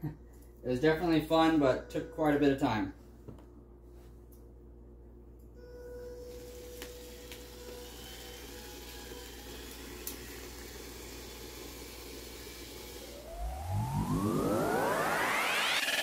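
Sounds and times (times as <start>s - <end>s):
rising synth sweep: 12.8s - 16.0s
electronic music: 13.1s - 16.0s.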